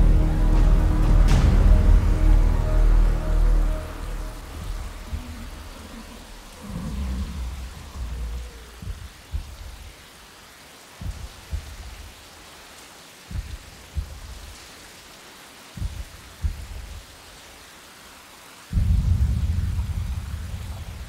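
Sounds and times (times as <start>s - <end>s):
deep heartbeat thumps: 0.0s - 2.6s, 4.4s - 5.9s, 6.7s - 10.1s, 11.0s - 12.3s, 13.3s - 14.6s, 15.8s - 17.0s, 18.7s - 21.0s
heavy rain: 0.0s - 21.0s.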